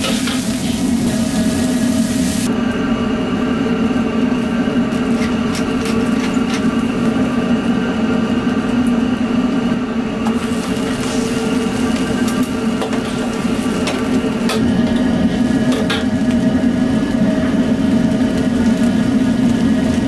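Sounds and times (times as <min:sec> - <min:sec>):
wok sizzling hiss: 0:00.0 - 0:02.6, 0:10.2 - 0:20.0
gas burner and ventilation drone: 0:00.0 - 0:20.0.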